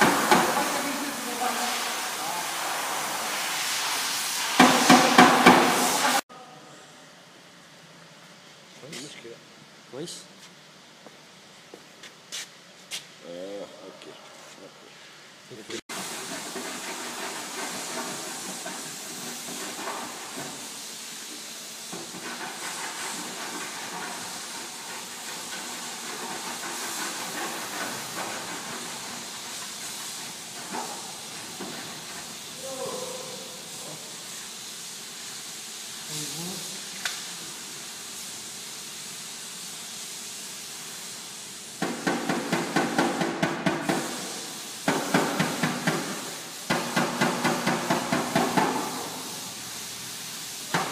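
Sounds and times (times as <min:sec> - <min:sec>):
steady hiss: 0:00.0 - 0:50.9
hammer tapping sheet metal: 0:46.7 - 0:49.0.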